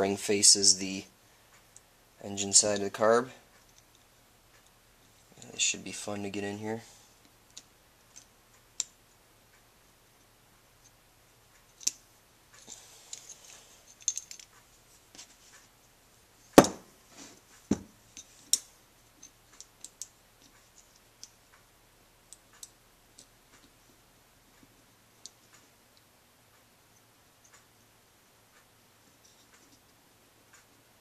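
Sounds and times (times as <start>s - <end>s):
small metal parts clicking: 12.6s - 14.6s, 18.2s - 21.4s
sharp knocks: 16.6s - 16.9s.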